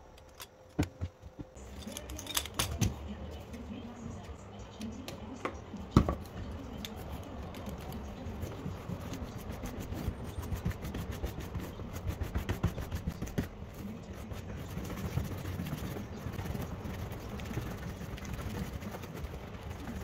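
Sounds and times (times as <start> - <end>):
stiff brush scratching: 6.2 - 20.0.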